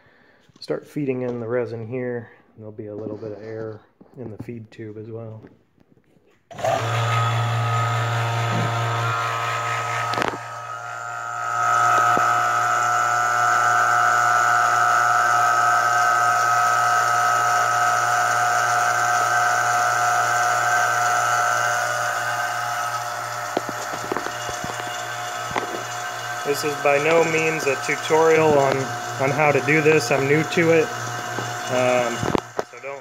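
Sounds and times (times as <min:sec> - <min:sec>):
vacuum pump hum and whine: 0:06.5 - 0:33.0.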